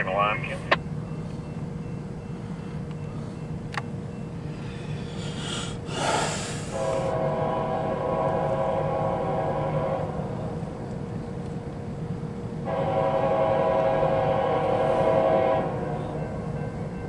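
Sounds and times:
diesel locomotive rumbling: 0.0s - 17.0s
locomotive air horn chord: 6.0s - 10.4s, 12.6s - 16.4s.

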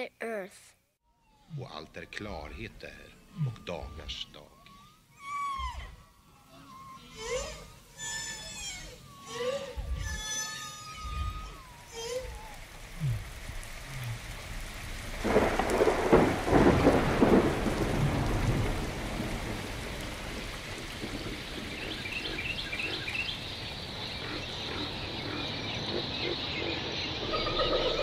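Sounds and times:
rain hissing: 1.5s - 28.0s
thunder rumbling: 11.0s - 28.0s
high chirping calls: 21.1s - 28.0s.

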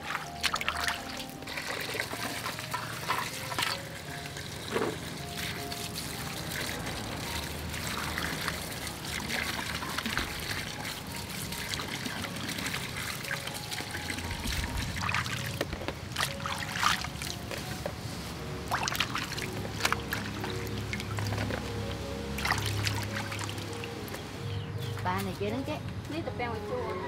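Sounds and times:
hands splashing water: 0.0s - 4.0s, 4.6s - 17.8s, 18.7s - 21.7s, 22.4s - 23.8s
water pouring into metal basin: 0.0s - 17.4s, 18.6s - 23.9s.

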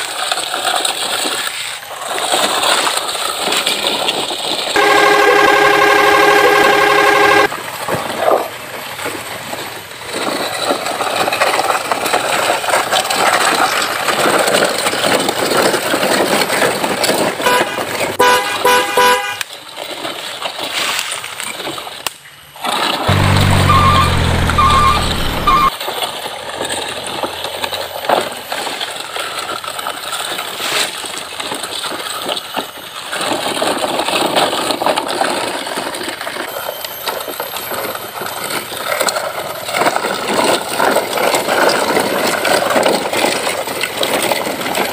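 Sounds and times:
truck horn honks: 4.8s - 7.5s, 17.4s - 19.5s, 23.1s - 25.7s
short high beeps: 23.2s - 25.7s.

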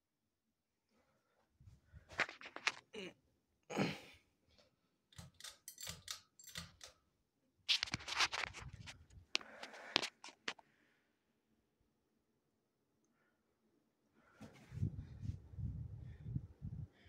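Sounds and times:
clicking and rattling of fan light kit: 5.1s - 7.1s, 7.7s - 10.6s.

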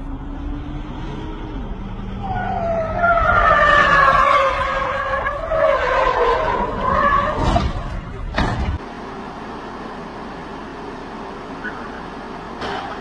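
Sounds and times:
car engine running: 6.6s - 13.0s.

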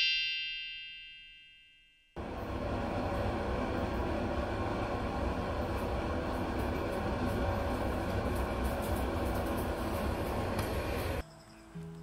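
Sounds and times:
chime ringing: 0.0s - 2.2s.

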